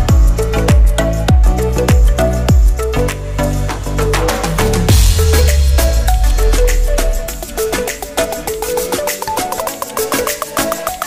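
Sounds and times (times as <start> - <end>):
music with beat and heavy bass: 0.0 - 11.0.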